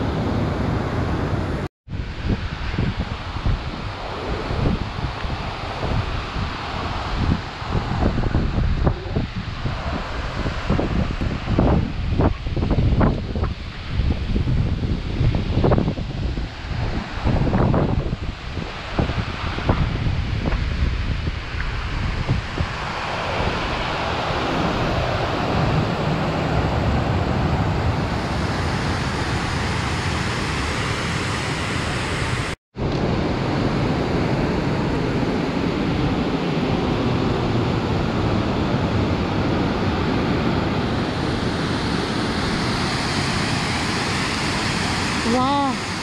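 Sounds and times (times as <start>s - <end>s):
waterfall rushing: 35.6s - 46.0s.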